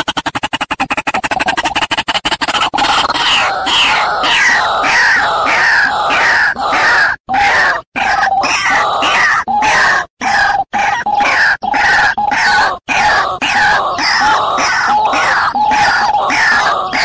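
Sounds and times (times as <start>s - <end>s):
bird croaking calls: 0.0s - 17.0s.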